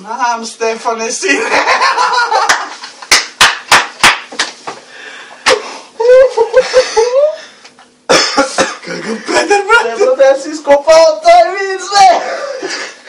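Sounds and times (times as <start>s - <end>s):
high wavering laugh: 1.3s - 2.9s, 6.0s - 7.5s, 8.4s - 10.1s
men laughing: 1.3s - 3.2s, 5.5s - 10.2s, 12.1s - 13.0s.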